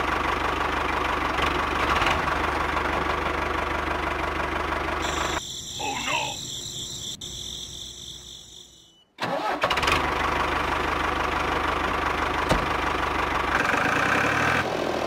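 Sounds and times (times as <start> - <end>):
tractor engine starting and idling: 0.0 - 15.0
faint high steady tone: 5.0 - 9.2.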